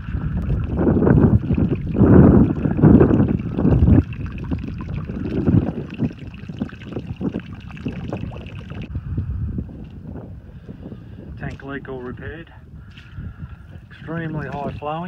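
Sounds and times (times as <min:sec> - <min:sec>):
faint water trickle: 0:00.0 - 0:08.9
wind buffeting microphone: 0:00.0 - 0:15.0.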